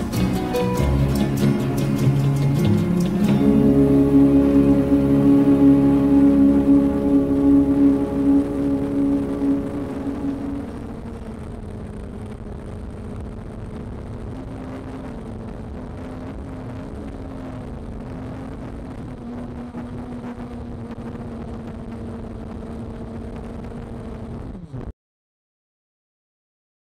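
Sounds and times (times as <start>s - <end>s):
drone propellers humming: 0.0s - 12.1s.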